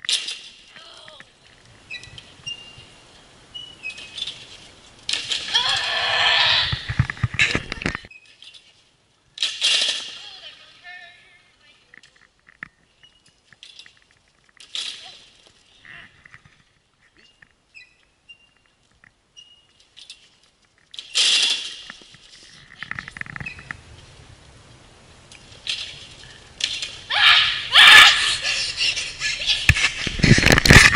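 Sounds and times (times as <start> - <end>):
bar squeaking: 0.0 - 1.2, 1.8 - 10.8, 12.7 - 23.8.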